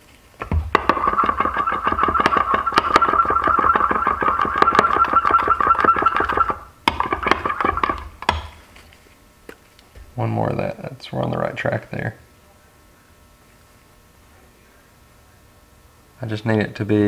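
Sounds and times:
stick scraping glass cup: 0.8s - 8.1s.

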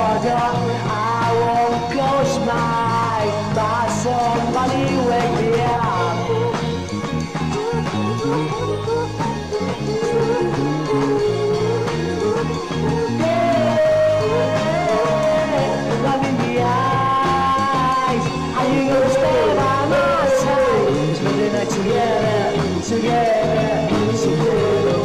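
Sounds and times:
rock song with singer: 0.0s - 25.0s.

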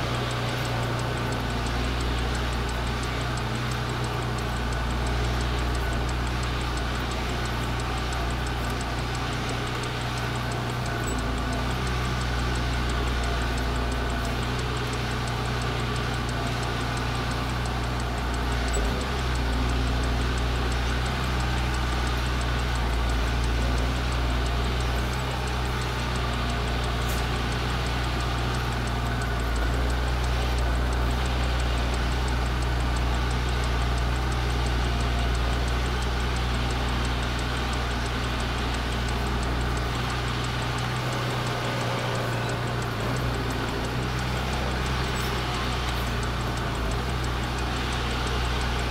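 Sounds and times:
truck diesel engine running: 0.0s - 48.9s.

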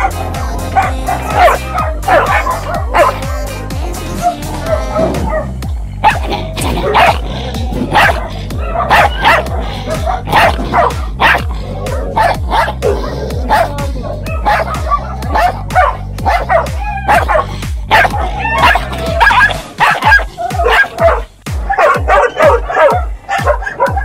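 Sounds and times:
dogs barking: 0.0s - 24.0s
music with deep bassline: 0.0s - 24.0s.

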